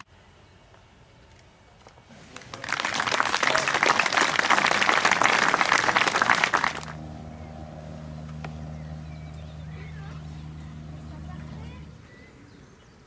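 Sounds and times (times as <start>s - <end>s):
spectators applauding: 2.3s - 7.0s
steady low hum: 3.4s - 13.0s.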